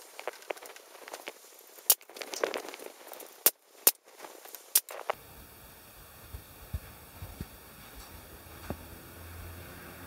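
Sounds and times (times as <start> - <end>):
handling noise: 0.0 - 5.2.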